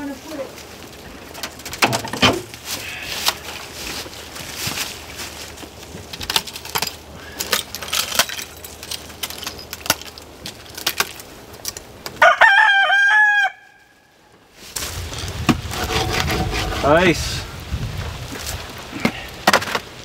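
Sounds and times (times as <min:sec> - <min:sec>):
rooster crowing: 0:12.2 - 0:14.0.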